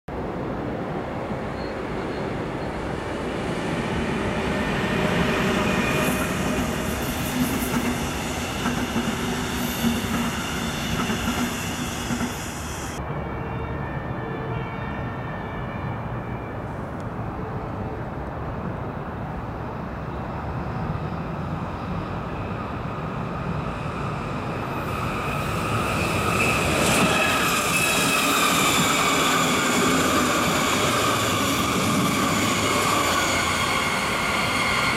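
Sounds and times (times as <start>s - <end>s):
electric train passing with whine: 0.1s - 34.9s
train running rumble: 4.0s - 13.0s.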